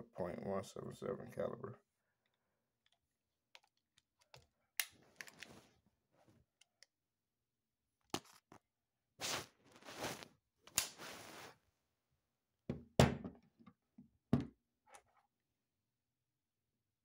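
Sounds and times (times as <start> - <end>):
scraping and rustling on wood: 9.2 - 10.2.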